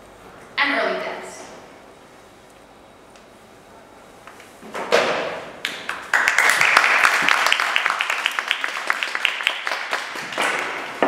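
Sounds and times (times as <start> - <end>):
audience applauding: 5.6 - 11.0.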